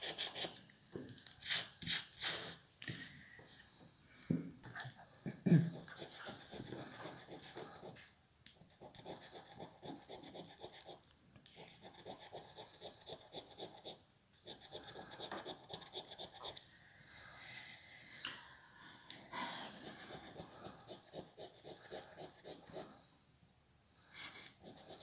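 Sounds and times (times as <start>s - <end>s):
fingernail scratching scratch card: 0.0s - 0.6s, 5.8s - 8.0s, 8.6s - 11.0s, 11.6s - 16.6s, 19.8s - 22.9s, 24.5s - 25.0s.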